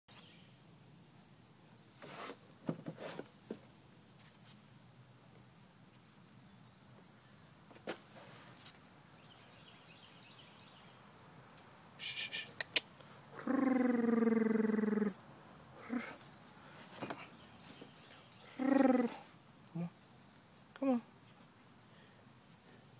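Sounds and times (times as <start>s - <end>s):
drawn-out vocal call: 12.0s - 16.4s, 18.3s - 20.1s.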